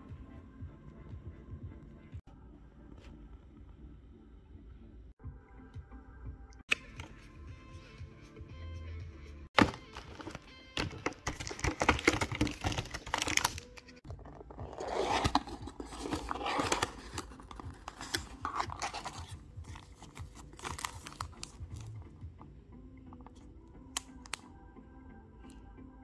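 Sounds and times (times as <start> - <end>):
faint background music: 0.0 - 26.0
packaging rustling and crinkling: 9.6 - 21.9.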